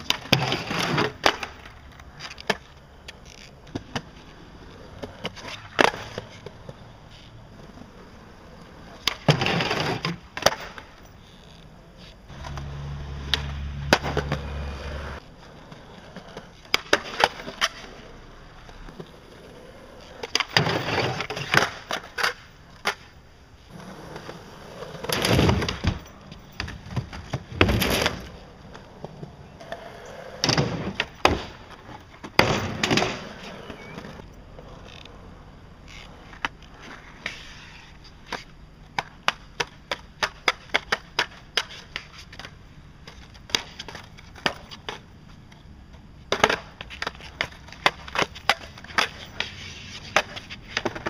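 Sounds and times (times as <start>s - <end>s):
skateboard grinding on wood: 0.0s - 38.4s, 46.3s - 51.0s
skateboard wheels rolling on concrete: 0.0s - 51.0s
skateboard wooden clacks: 36.0s - 51.0s.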